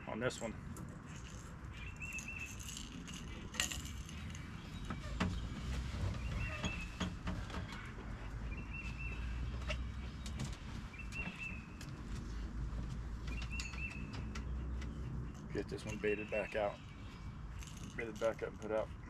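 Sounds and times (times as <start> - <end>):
bird chirping: 0.4 - 12.4, 13.1 - 18.8
fishing tackle clicking and jangling: 1.0 - 4.9, 17.5 - 18.8.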